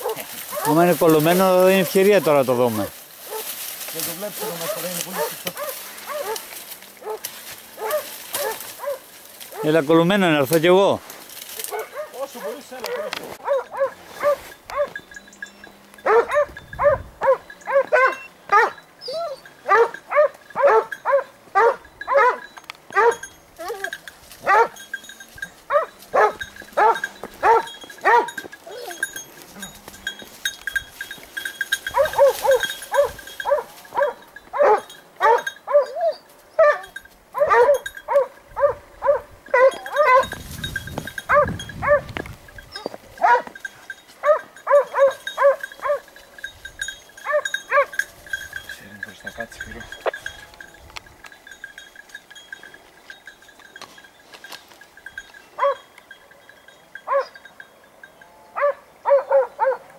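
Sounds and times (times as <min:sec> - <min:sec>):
dogs barking: 0:00.0 - 0:00.8, 0:03.2 - 0:03.6, 0:04.4 - 0:09.8, 0:11.6 - 0:15.0, 0:16.0 - 0:24.9, 0:25.6 - 0:29.8, 0:31.7 - 0:40.4, 0:41.2 - 0:46.3, 0:47.2 - 0:48.1, 0:55.6 - 0:56.4, 0:57.0 - 0:57.5, 0:58.6 - 0:59.9.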